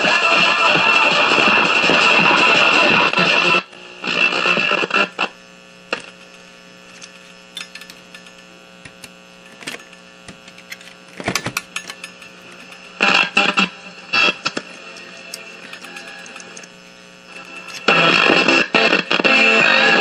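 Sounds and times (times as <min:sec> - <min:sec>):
radio speaker mains hum: 0:00.0 - 0:20.0
radio station audio: 0:03.2 - 0:20.0
clicks and crackle from speaker: 0:03.7 - 0:19.2.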